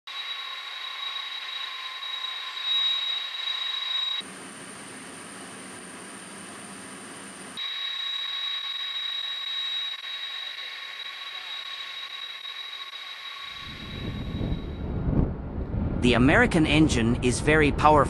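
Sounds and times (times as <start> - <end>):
jet whistle: 0.1 - 4.2, 7.6 - 15.0
jet engines idling whine: 0.1 - 15.9
low rumble: 13.6 - 18.0.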